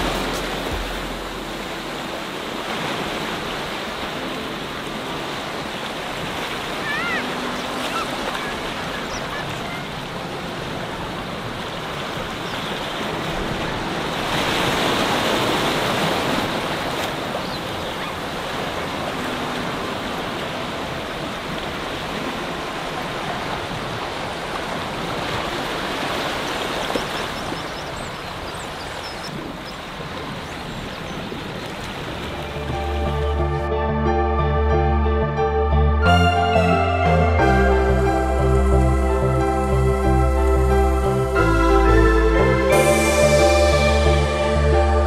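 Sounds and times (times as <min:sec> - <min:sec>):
sea waves washing among rocks: 0:00.0 - 0:33.0.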